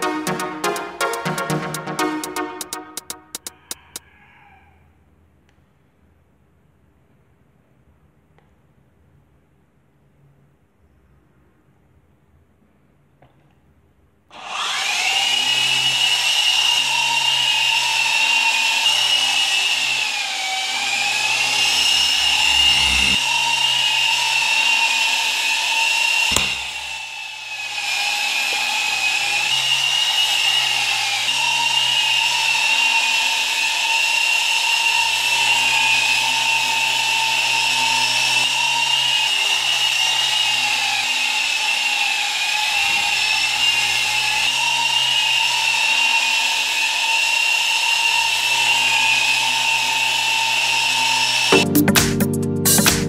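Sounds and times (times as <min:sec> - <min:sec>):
rc helicopter motors whining: 0:14.3 - 0:51.6
sharp click: 0:26.3 - 0:27.0.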